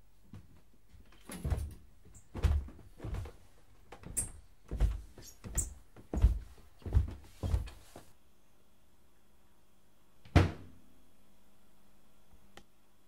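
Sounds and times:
footsteps on wooden stairs: 0:00.3 - 0:08.1
stairs creaking: 0:01.1 - 0:08.1.

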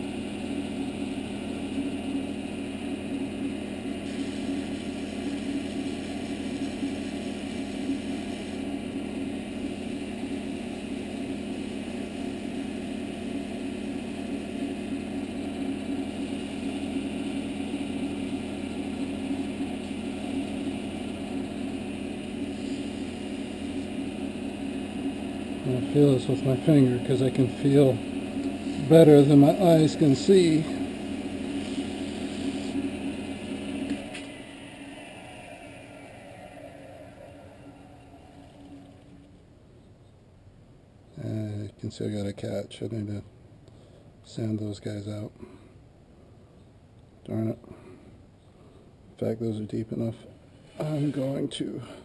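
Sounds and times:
wood lathe motor hum: 0:00.0 - 0:39.4
sandpaper on spinning wood: 0:28.6 - 0:33.4.

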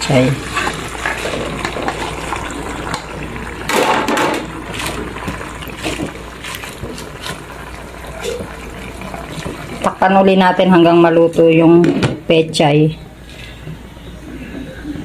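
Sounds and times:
broth simmering in a pan: 0:00.0 - 0:11.2.

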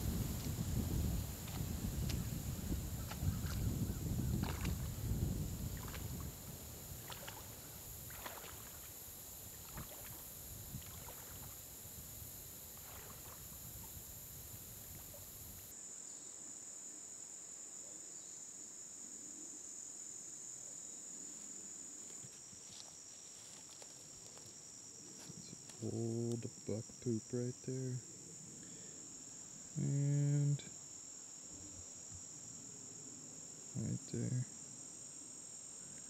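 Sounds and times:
insects chirping in chorus: 0:00.0 - 0:36.0
steady high hiss: 0:00.0 - 0:36.0
footsteps crunching through brush: 0:07.0 - 0:09.0, 0:22.0 - 0:24.6.

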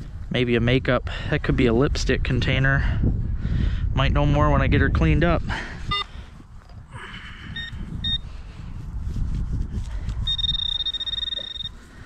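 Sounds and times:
metal detector beeps: 0:05.9 - 0:06.1, 0:07.6 - 0:08.2, 0:10.2 - 0:11.9
metal detector steady tone: 0:07.6 - 0:08.3, 0:10.2 - 0:12.0.

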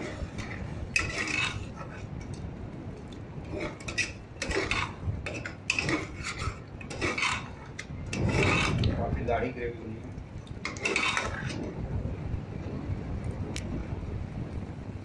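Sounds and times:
metal ladle scraping pot: 0:00.0 - 0:02.4, 0:03.4 - 0:09.0, 0:10.6 - 0:11.7.

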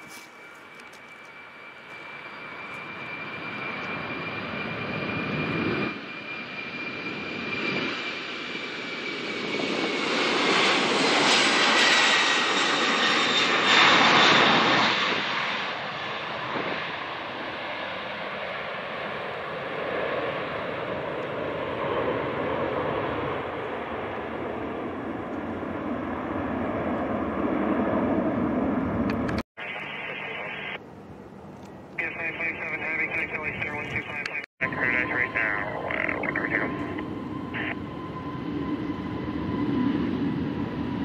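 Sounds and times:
jet engines roaring on takeoff: 0:00.0 - 0:41.0.

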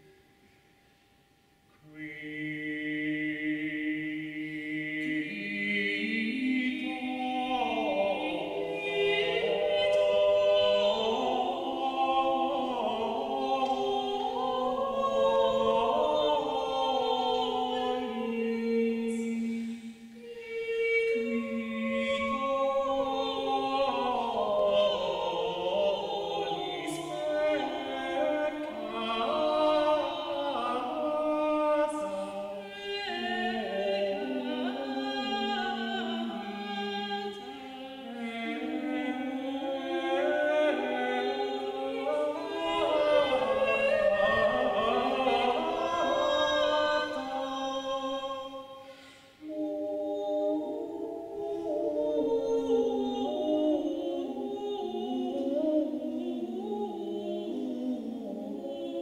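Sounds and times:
mixed choir singing a cappella: 0:01.8 - 0:59.0.

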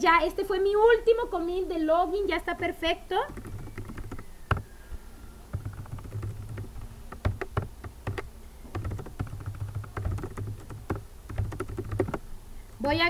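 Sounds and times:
typing on computer keyboard: 0:03.3 - 0:04.6, 0:05.5 - 0:12.2.

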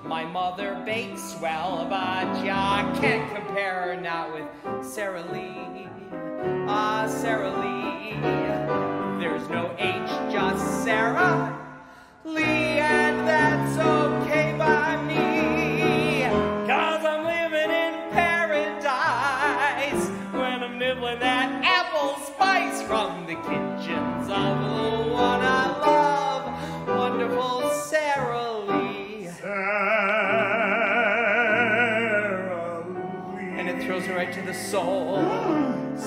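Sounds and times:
grand piano: 0:00.0 - 0:36.0
man singing operatically: 0:00.0 - 0:36.0.

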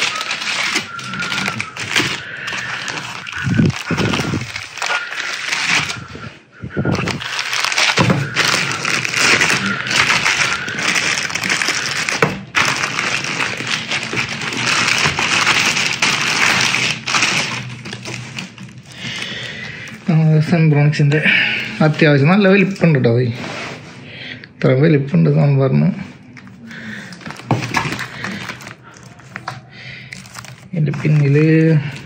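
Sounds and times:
plastic wrapping crinkling: 0:00.0 - 0:24.0, 0:26.0 - 0:32.0
foam packing rubbing and knocking: 0:06.9 - 0:18.7.

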